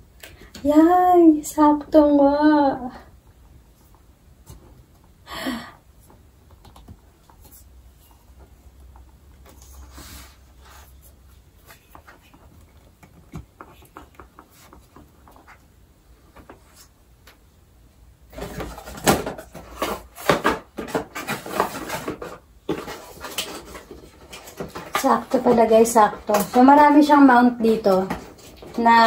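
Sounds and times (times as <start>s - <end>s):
plastic clattering and rustling: 18.3s - 29.0s.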